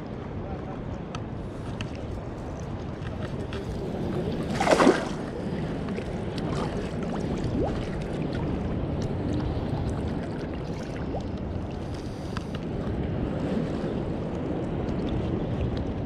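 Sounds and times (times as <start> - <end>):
wind on microphone: 0.0 - 16.0
river water moving: 1.3 - 16.0.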